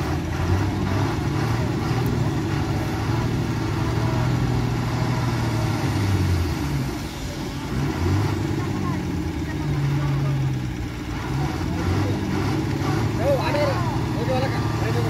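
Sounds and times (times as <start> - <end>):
lorry diesel engine droning: 0.0 - 15.0.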